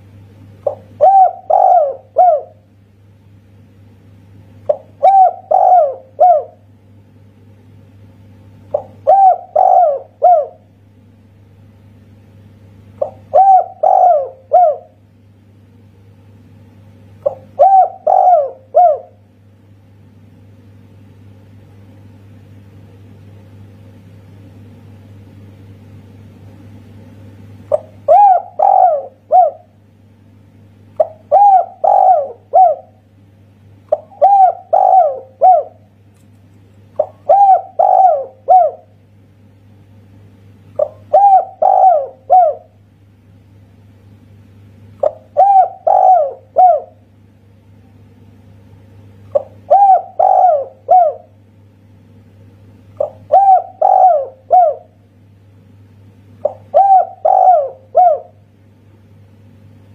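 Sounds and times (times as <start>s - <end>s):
faint low hum: 0.0s - 59.9s
dove cooing: 0.6s - 2.7s, 4.7s - 6.7s, 8.7s - 10.7s, 13.0s - 15.0s, 17.2s - 19.2s, 27.7s - 29.8s, 31.0s - 33.1s, 33.9s - 35.9s, 37.0s - 39.0s, 40.8s - 42.8s, 45.0s - 47.1s, 49.3s - 51.4s, 52.9s - 55.0s, 56.4s - 58.4s.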